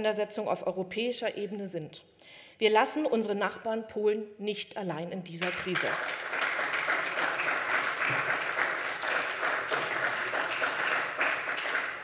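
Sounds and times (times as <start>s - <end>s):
crowd applauding: 5.4s - 12.0s.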